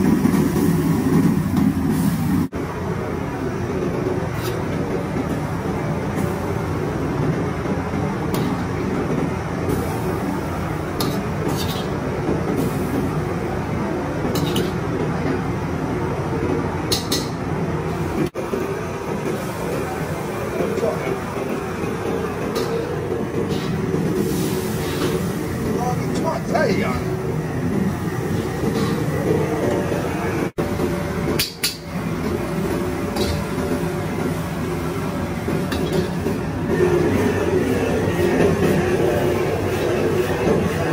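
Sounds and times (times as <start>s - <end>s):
gas burner rushing: 0.0s - 40.9s
wok and utensils clinking: 11.0s - 12.0s, 14.3s - 14.8s, 33.1s - 33.6s, 35.6s - 36.2s.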